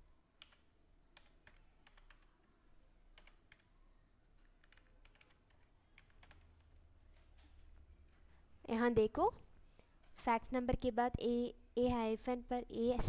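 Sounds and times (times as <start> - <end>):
keystrokes on a computer keyboard: 0.3 - 7.9.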